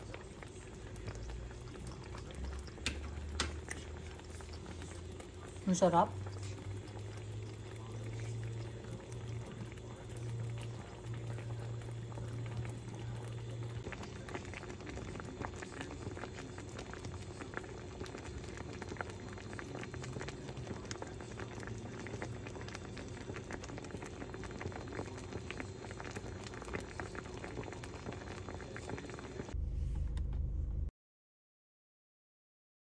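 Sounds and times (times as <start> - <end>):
chicken frying in sizzling oil: 0.0 - 29.6
low rumble: 29.5 - 30.9.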